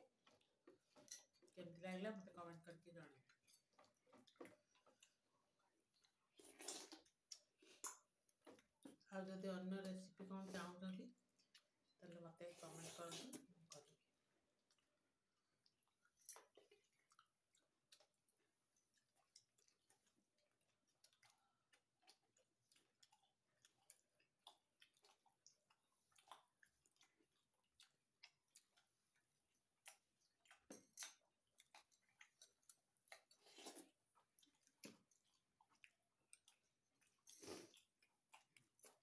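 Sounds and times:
person chewing food: 0.0 - 1.6, 3.2 - 9.1, 11.2 - 12.0, 12.7 - 39.0.

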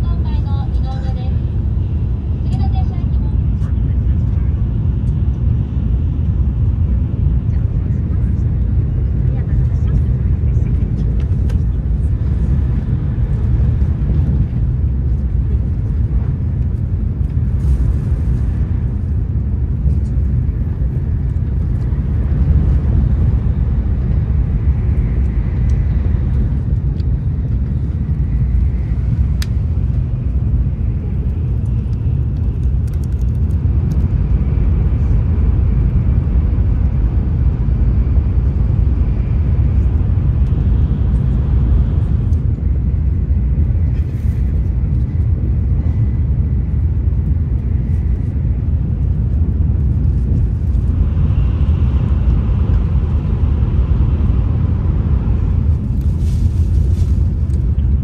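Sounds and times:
train running low rumble: 0.0 - 58.0.

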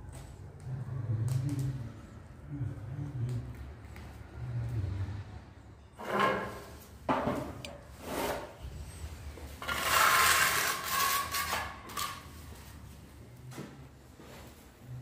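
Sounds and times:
trowel scraping adhesive on tiles: 9.6 - 12.3.

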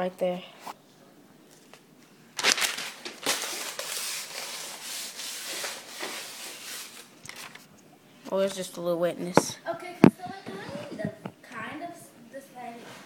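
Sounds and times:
rubbing against microphone: 10.0 - 11.7.

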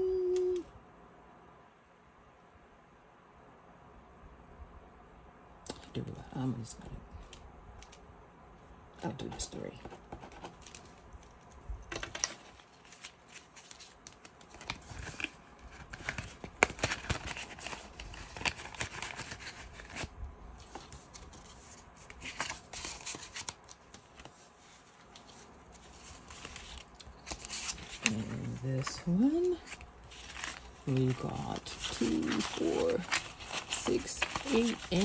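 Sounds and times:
paper bills and plastic rustling: 9.1 - 35.0.

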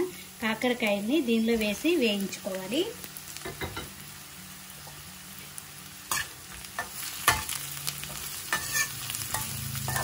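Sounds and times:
vegetables sizzling in oil: 0.0 - 10.0
spatula scraping a pan: 6.1 - 10.0.

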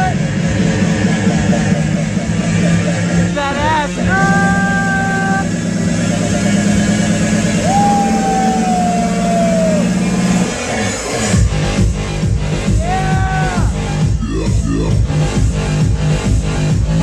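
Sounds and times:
electronic dance music: 0.0 - 17.0
heavy steady bass: 0.0 - 17.0.

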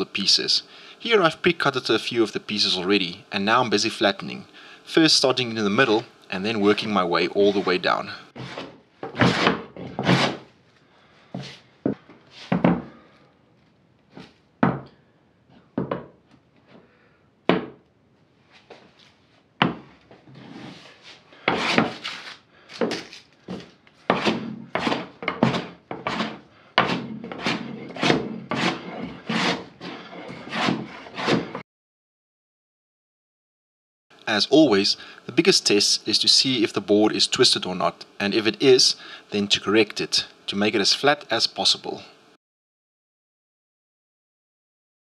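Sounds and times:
hand plane shaving wood: 8.4 - 10.4, 21.4 - 22.4, 23.5 - 31.6.

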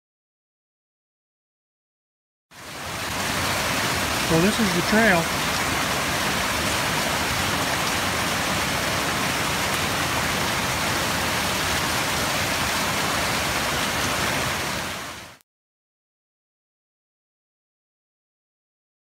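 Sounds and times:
running water rushing: 2.5 - 15.4.

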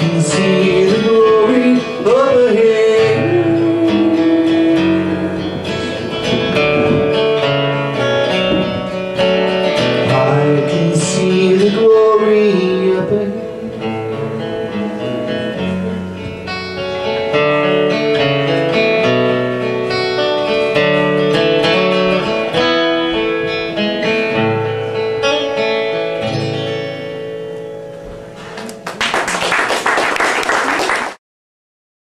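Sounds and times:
acoustic guitar playing: 0.0 - 30.2.

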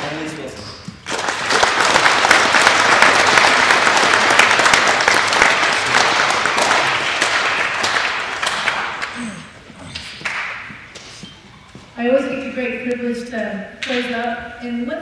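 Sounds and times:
audience applauding: 1.0 - 10.7.

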